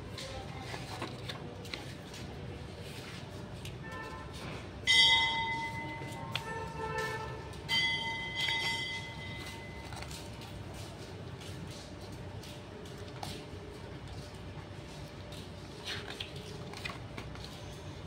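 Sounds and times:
bell ringing: 4.9s - 6.2s, 7.7s - 9.8s.

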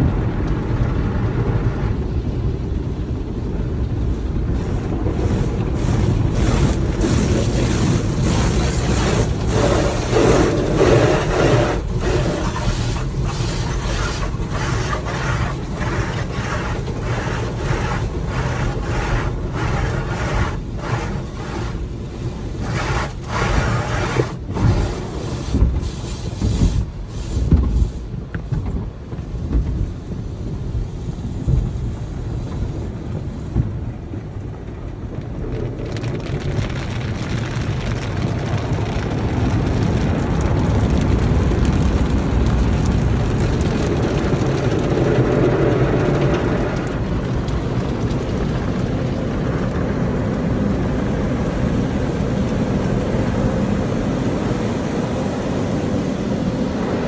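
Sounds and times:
water rushing and scrubbing: 2.0s - 57.0s
brushes slapping against car: 4.6s - 29.9s.

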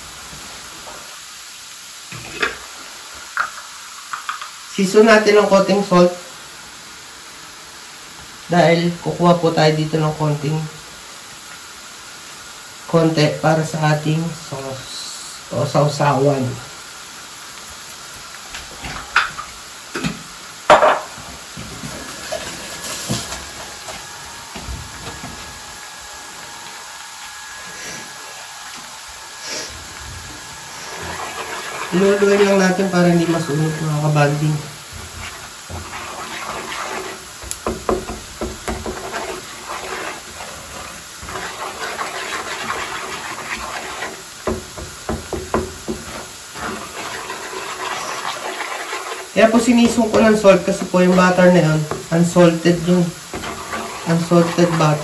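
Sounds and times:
garlic sizzling in butter: 0.0s - 55.0s
wooden spatula scraping a pan: 20.8s - 55.0s
utensils knocking against pan: 37.4s - 39.2s.

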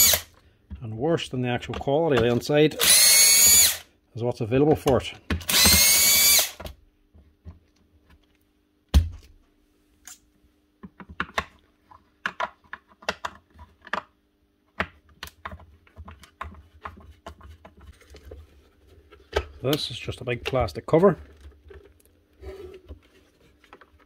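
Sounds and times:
plastic housing clicking and knocking: 10.8s - 14.1s.

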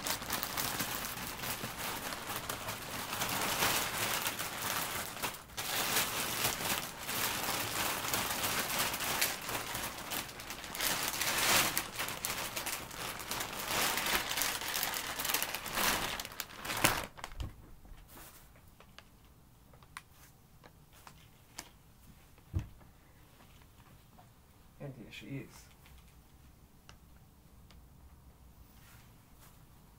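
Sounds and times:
plastic bag crinkling: 0.0s - 17.6s
thump: 22.5s - 22.8s.

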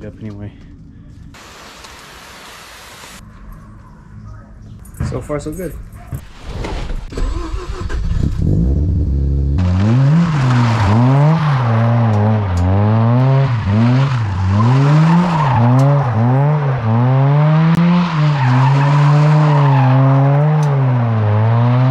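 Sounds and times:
rotary engine revving: 7.1s - 21.9s
tires squealing: 9.6s - 21.9s.

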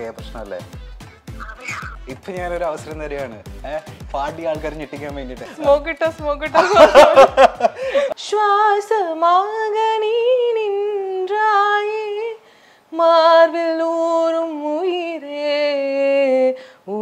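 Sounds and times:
woman singing unaccompanied: 8.1s - 17.0s.

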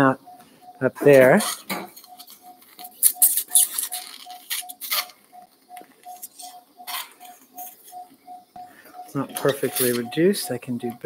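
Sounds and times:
monitor beeping: 0.0s - 11.0s
handling rustles and clicks: 1.0s - 8.1s, 9.2s - 10.9s.

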